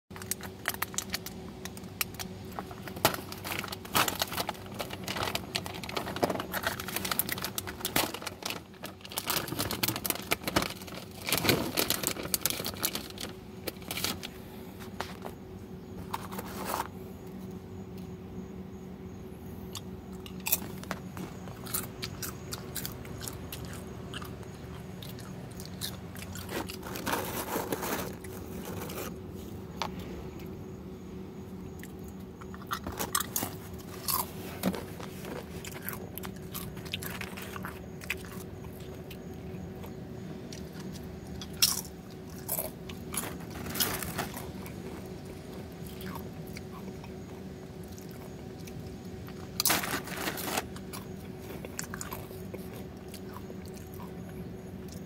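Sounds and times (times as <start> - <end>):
tortilla chips crunching: 0.1 - 15.4, 19.7 - 30.5, 31.8 - 55.0
steady low hum: 0.1 - 55.0
plastic packaging crinkling: 0.2 - 17.0, 24.4 - 29.6, 32.4 - 39.0, 40.6 - 46.3, 49.2 - 53.3.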